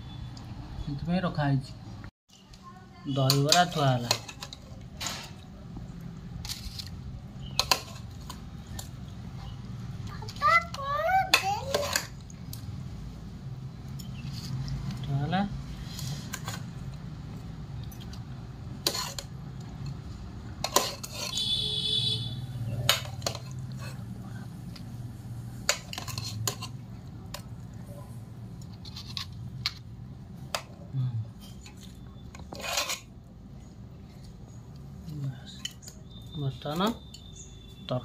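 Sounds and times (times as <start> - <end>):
metal spoon clinking on bowls: 18.8 - 21.6, 22.7 - 24.0, 25.7 - 27.6, 30.5 - 33.1
spoon scraping rasp: 20.6 - 21.6, 32.4 - 33.1.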